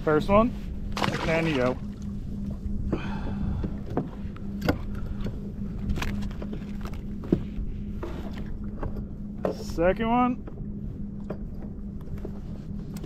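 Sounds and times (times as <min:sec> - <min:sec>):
faint steady hum: 0:00.0 - 0:13.0
wind and water rumble: 0:00.0 - 0:13.0.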